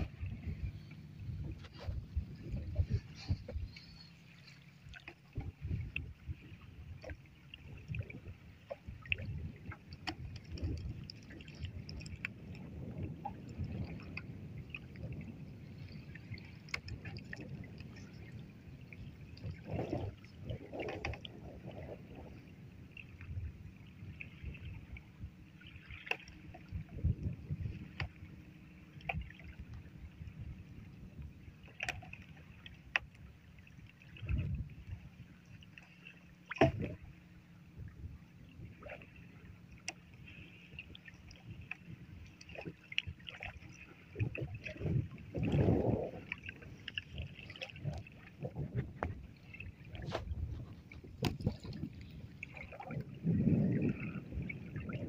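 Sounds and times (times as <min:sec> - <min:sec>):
wind buffeting microphone: 0:00.0 - 0:04.5, 0:05.2 - 0:25.9, 0:26.5 - 0:31.6, 0:34.1 - 0:35.3, 0:40.8 - 0:55.0
water splashing: 0:00.0 - 0:30.7, 0:31.4 - 0:55.0
water slapping wooden boat: 0:00.0 - 0:55.0.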